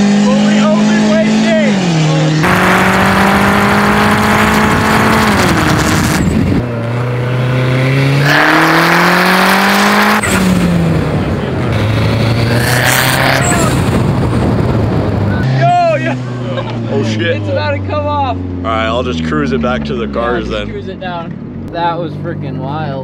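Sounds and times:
turbocharged car engine revving: 0.0 - 23.0
wind and road noise: 0.0 - 23.0.

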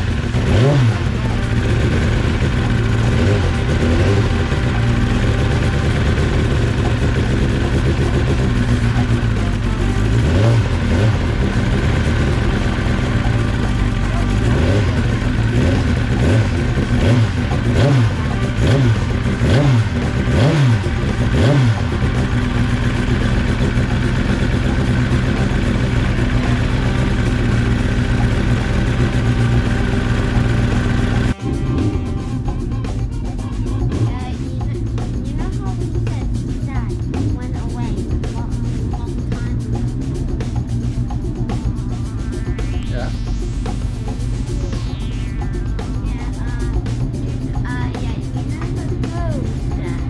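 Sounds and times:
racing motorcycle engines revving: 0.0 - 50.0.

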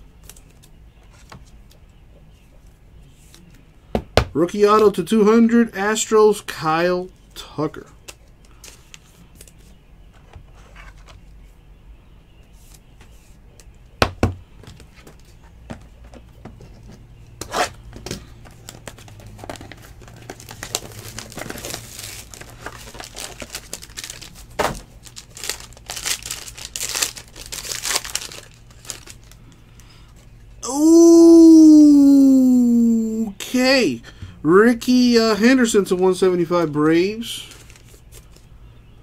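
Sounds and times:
foil wrapper crinkling and tearing: 18.6 - 29.5, 37.4 - 38.3.

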